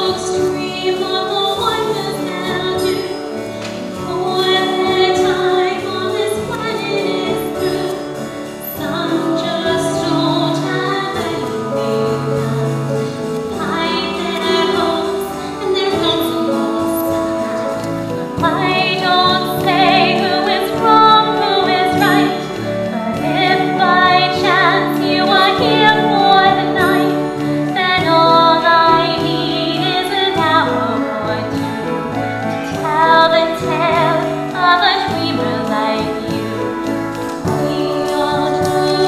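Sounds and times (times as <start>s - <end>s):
sustained instrumental accompaniment: 0.0s - 39.0s
woman singing with vibrato: 0.0s - 39.0s.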